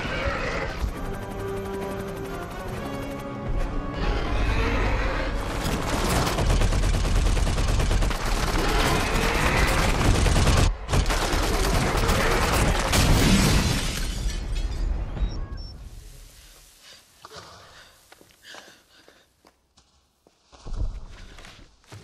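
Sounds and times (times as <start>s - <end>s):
rapid machine-gun fire: 5.6s - 12.9s.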